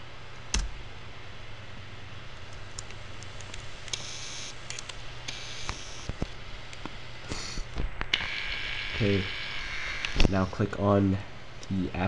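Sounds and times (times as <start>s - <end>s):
computer hum: 0.0s - 12.0s.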